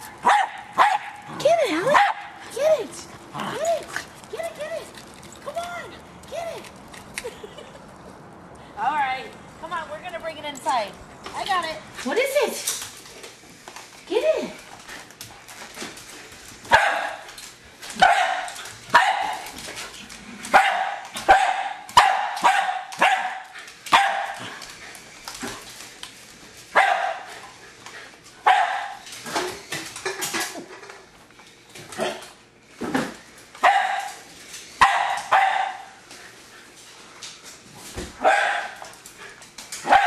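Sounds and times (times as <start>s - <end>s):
dog barking: 0.2s - 1.2s, 1.9s - 2.3s, 16.7s - 17.2s, 18.0s - 19.4s, 20.5s - 24.4s, 26.8s - 27.2s, 28.4s - 29.0s, 33.6s - 34.1s, 34.8s - 35.9s, 38.2s - 38.8s.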